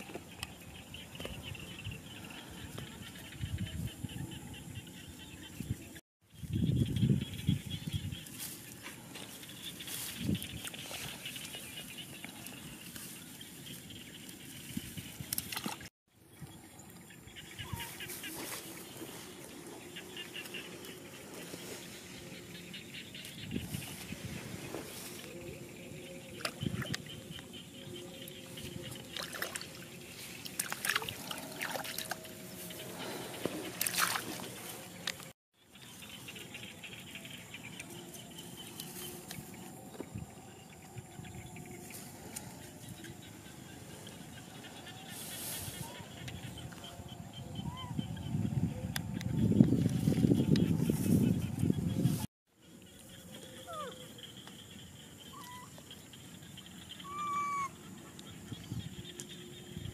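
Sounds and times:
quiet outdoor background: 0.0 - 59.9
steady field hiss: 7.2 - 15.2, 16.2 - 47.8
muddy water sloshing and splashing: 14.2 - 17.0, 28.4 - 35.3.

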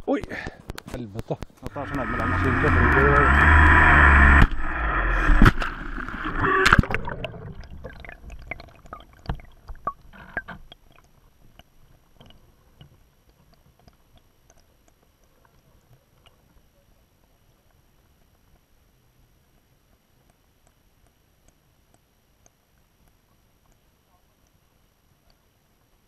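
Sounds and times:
underwater gurgling and bubbling: 1.7 - 12.8.

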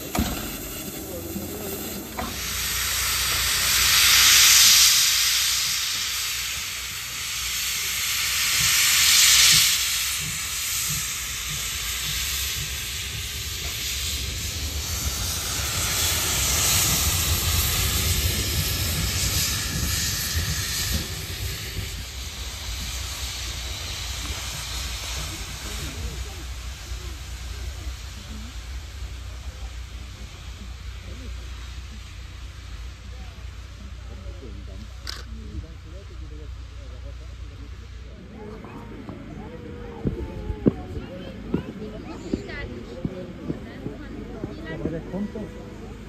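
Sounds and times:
low locomotive rumble: 0.0 - 46.0
steam locomotive hissing: 0.0 - 46.0.

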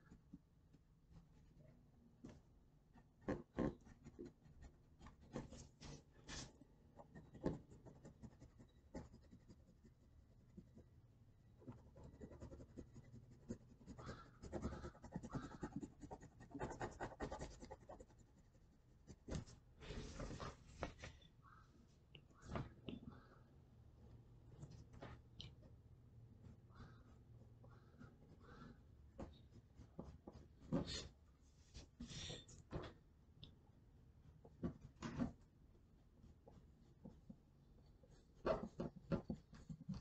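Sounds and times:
pencil scratching on paper: 3.0 - 10.9, 11.6 - 19.6.

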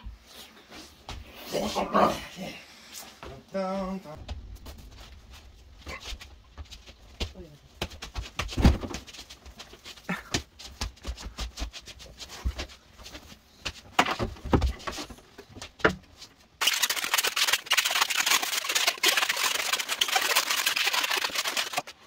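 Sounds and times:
knocks and thumps: 4.2 - 9.6, 13.7 - 16.2
balloon twisting and squeaking: 16.6 - 22.0.

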